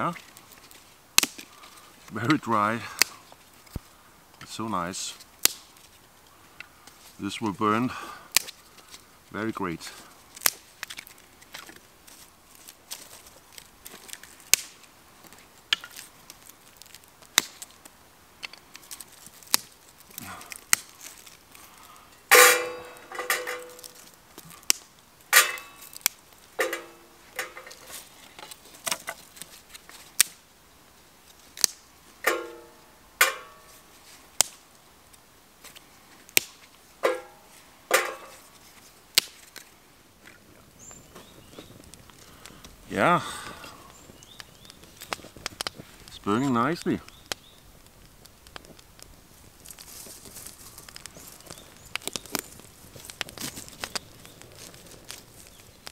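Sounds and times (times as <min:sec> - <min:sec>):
sticks snapping: 0:00.2 - 0:01.8, 0:05.4 - 0:05.9, 0:08.3 - 0:09.0, 0:10.3 - 0:30.4, 0:31.5 - 0:33.8, 0:34.4 - 0:34.6, 0:35.6 - 0:39.8, 0:43.8 - 0:45.8, 0:46.8 - 0:55.9.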